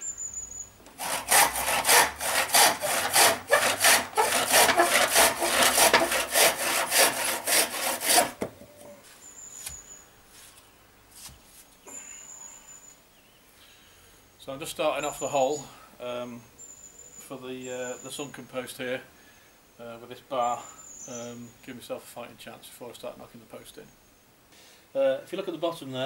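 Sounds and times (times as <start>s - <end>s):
hand saw cutting bamboo: 0.9s - 8.5s.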